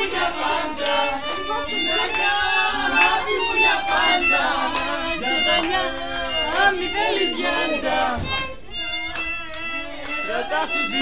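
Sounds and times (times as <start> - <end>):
violin melody: 0.0 - 11.0.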